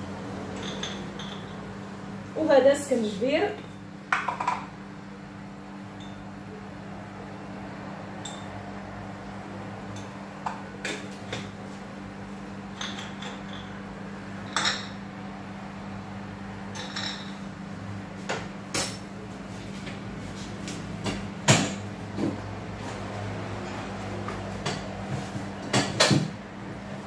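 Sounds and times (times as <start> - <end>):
glass jars clinking and tapping: 0.6 - 1.6, 12.8 - 13.8, 14.5 - 15.0, 16.7 - 17.4.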